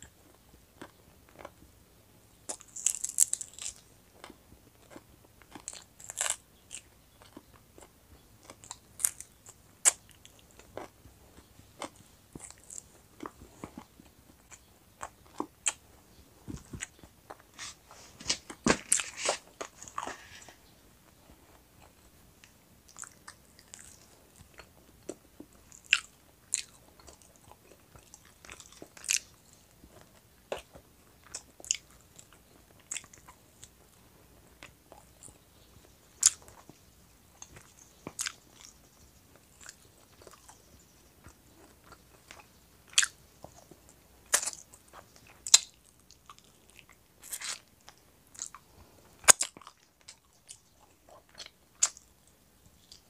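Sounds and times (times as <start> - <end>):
crunching and chewing food: 0.0 - 53.0.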